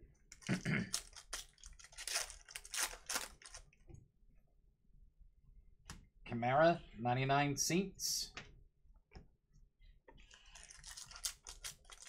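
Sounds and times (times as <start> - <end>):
foil wrapper crinkling and tearing: 0.4 - 3.7, 10.3 - 12.0.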